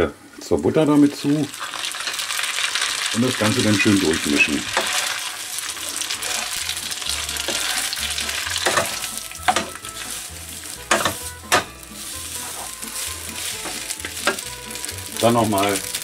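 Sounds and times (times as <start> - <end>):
butter sizzling in a pan: 0.8 - 16.0
noodles being stirred: 1.5 - 16.0
spatula knocking against pan: 10.9 - 11.7.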